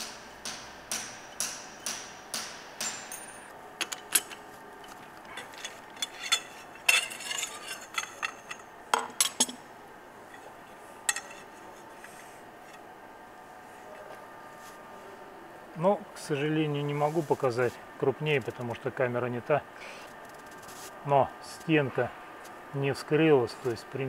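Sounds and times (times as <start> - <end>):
metal clinks and knocks: 2.8 - 9.6.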